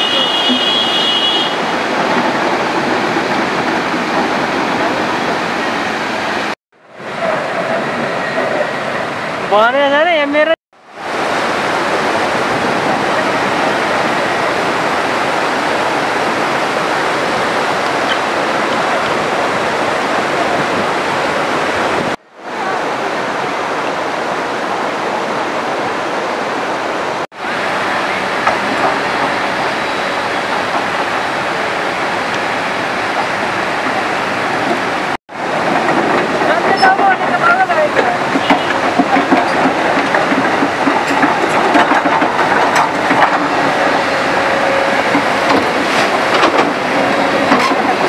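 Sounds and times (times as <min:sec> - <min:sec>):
river rushing over rocks: 0:10.8 - 0:48.0.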